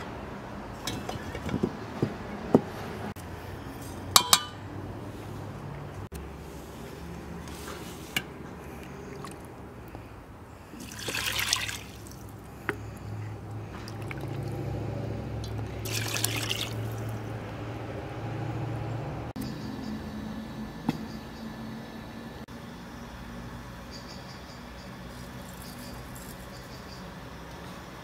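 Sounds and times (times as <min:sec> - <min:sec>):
water pouring into metal pot: 0:10.8 - 0:12.3, 0:15.5 - 0:17.1.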